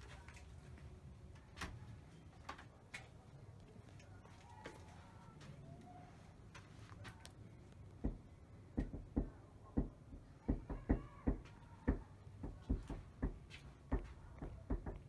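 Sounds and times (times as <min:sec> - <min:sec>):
knocking on a door: 0:08.0 - 0:15.0.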